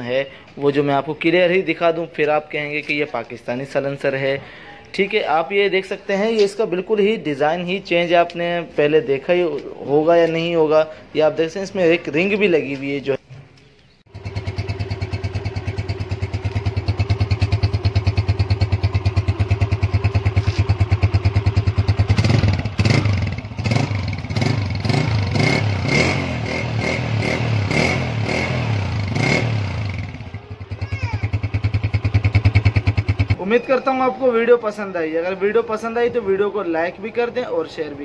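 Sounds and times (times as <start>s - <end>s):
motorcycle engine idling and revving: 14.1s - 33.4s.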